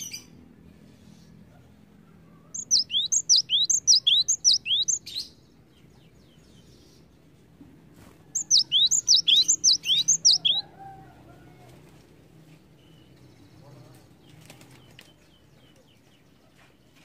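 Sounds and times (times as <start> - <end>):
bird whistling two-note song: 8.5 - 10.6.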